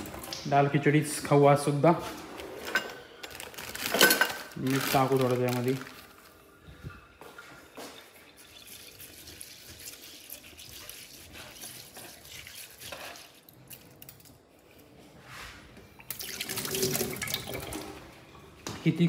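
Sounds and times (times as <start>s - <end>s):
water running from tap into sink: 7.7s - 13.3s, 16.1s - 18.0s.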